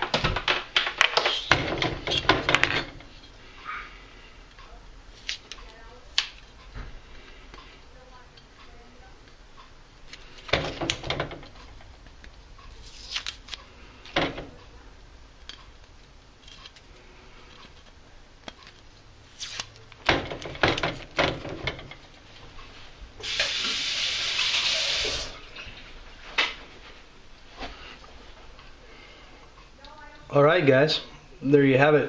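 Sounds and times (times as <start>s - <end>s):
tape rustling and tapping: 0.0s - 3.3s
tape ripping off metal: 12.8s - 13.6s, 19.3s - 21.2s.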